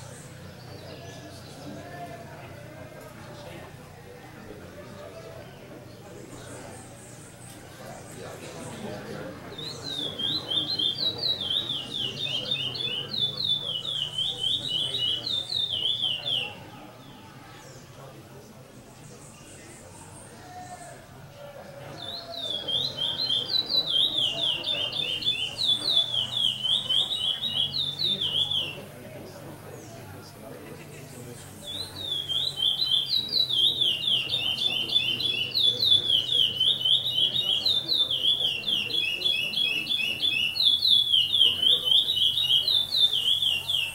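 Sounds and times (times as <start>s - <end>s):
songbird whistling: 9.5s - 16.7s, 22.0s - 29.0s, 31.6s - 43.9s.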